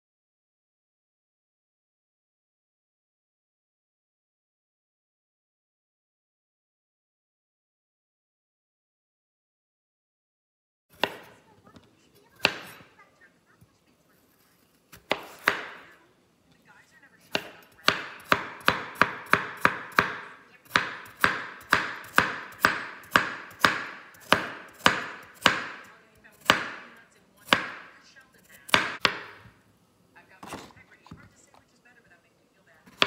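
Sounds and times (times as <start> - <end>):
knife chopping on wooden board: 10.9 - 12.9, 14.9 - 16.0, 17.3 - 28.0, 28.6 - 29.6.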